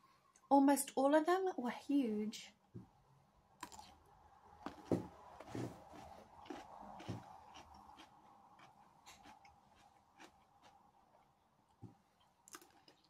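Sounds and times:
pickle crunching while chewed: 3.6s - 4.0s, 4.6s - 10.8s, 12.2s - 13.0s.

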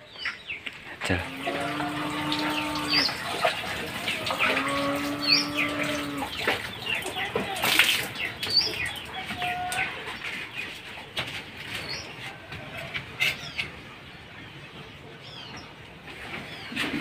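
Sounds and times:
chickens clucking: 0.0s - 17.0s
long animal call: 1.1s - 6.4s.

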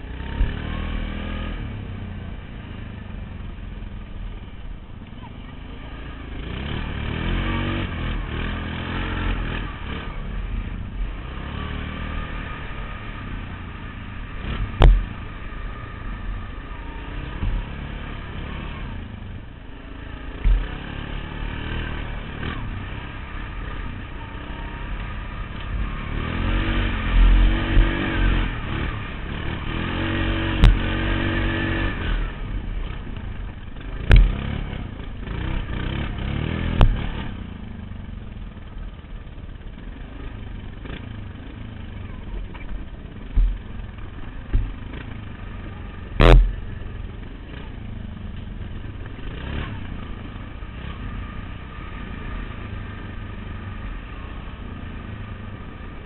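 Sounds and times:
quad engine revving: 0.0s - 3.9s, 5.6s - 56.0s
sharp knocks: 14.8s - 15.2s.

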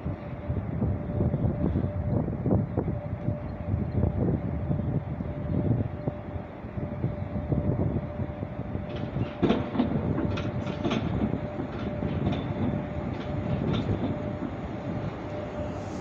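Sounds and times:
freight train rumbling: 0.0s - 16.0s
wheels clicking over rail joints: 8.8s - 15.4s.

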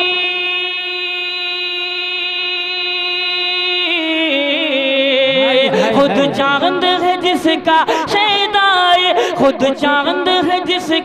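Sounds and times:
man singing long note: 0.0s - 7.8s.

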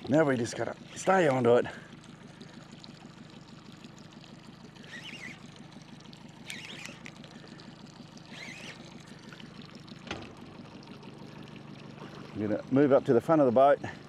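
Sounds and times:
boat motor humming: 0.0s - 14.0s
short wavering high sounds: 4.7s - 9.8s.

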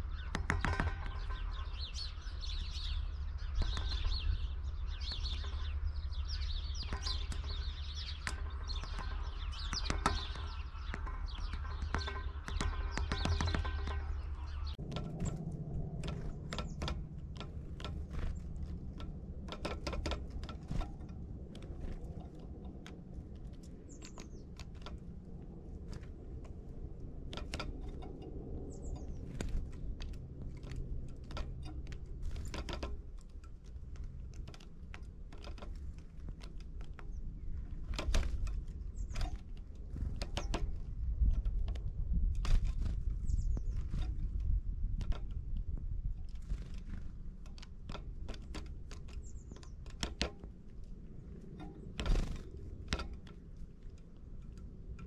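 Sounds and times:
woodpecker tapping: 0.0s - 55.0s.

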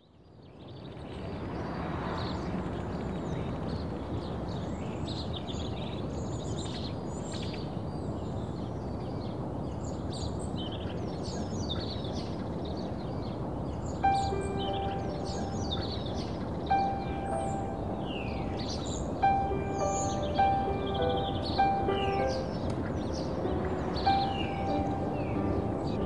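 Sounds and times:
steady low background noise: 0.3s - 26.0s
birds chirping: 9.9s - 26.0s.

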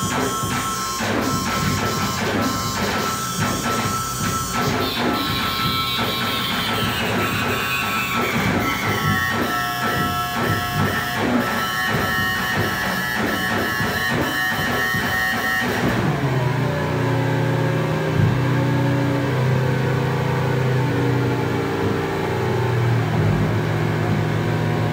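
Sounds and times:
held high synth tones: 0.0s - 15.7s
stuttering synthesiser pulses: 0.0s - 24.9s
low droning tones: 14.8s - 24.9s.

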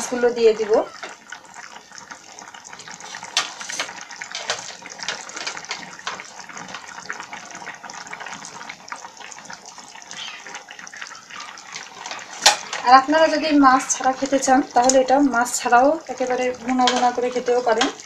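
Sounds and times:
curry bubbling and popping: 0.0s - 18.0s.

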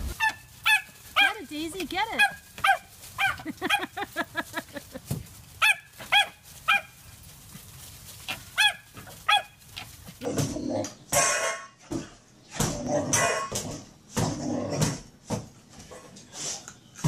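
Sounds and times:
small dog barking: 0.0s - 1.4s, 2.1s - 4.0s, 5.6s - 7.0s, 8.5s - 9.6s.

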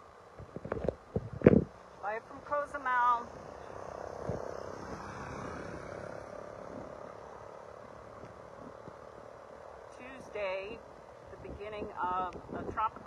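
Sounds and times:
gusty wind: 0.0s - 13.0s.

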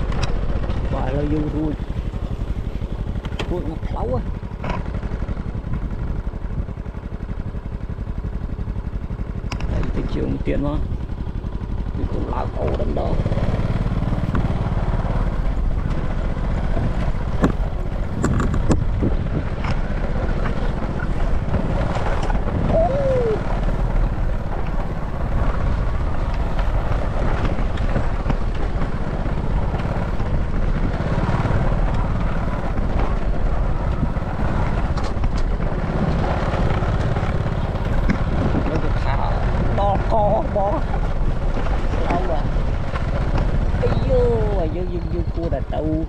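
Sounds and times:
small motorbike engine running: 0.0s - 46.0s
wind buffeting microphone: 9.7s - 46.0s.

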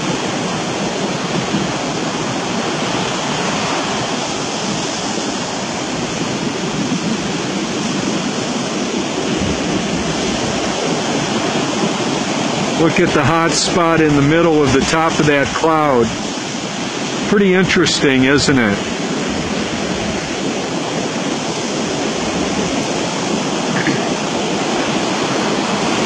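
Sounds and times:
steady rushing noise: 0.0s - 26.0s.

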